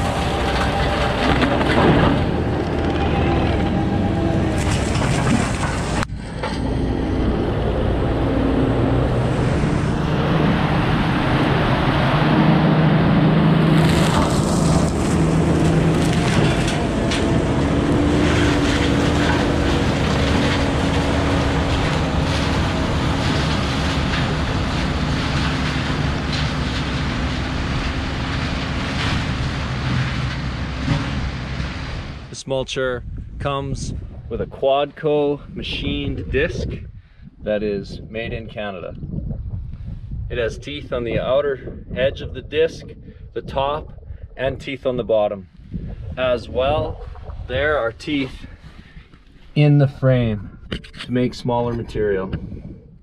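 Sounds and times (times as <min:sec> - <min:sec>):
mulcher shredding wood: 0:00.0 - 0:32.3
diesel engine under load: 0:00.0 - 0:32.4.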